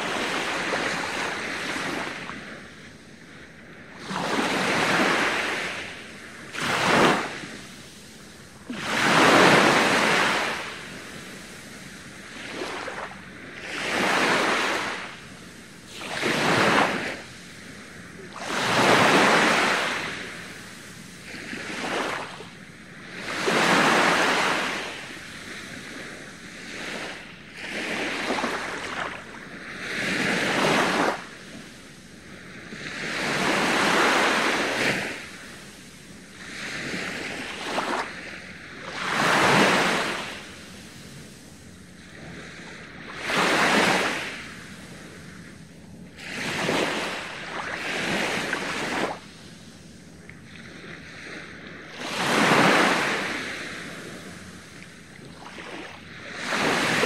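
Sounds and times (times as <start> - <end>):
small waves breaking on beach: 0.0 - 57.0.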